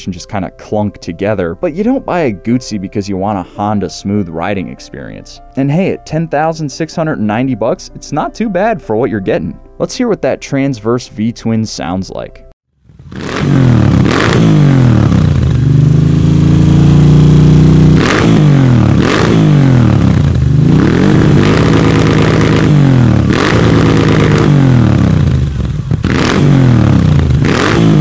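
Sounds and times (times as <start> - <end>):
motorcycle engine revving: 12.7 - 28.0.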